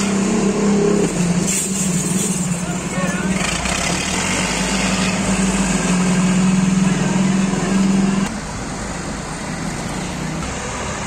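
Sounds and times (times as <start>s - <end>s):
tractor diesel engine running hard: 0.0s - 11.0s.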